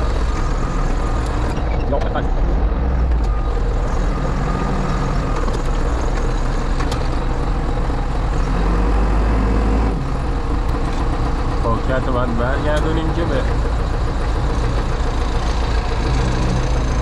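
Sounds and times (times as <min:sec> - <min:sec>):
diesel engine running: 0:00.0 - 0:17.0.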